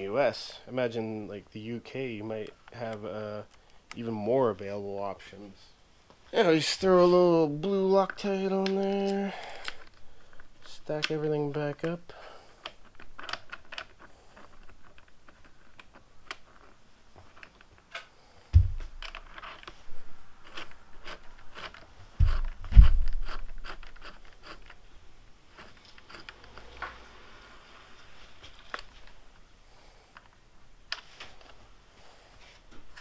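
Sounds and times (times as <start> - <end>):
hands clicking and scraping parts: 7.6 - 24.8, 25.4 - 27.2
dull thump: 18.5 - 19.0.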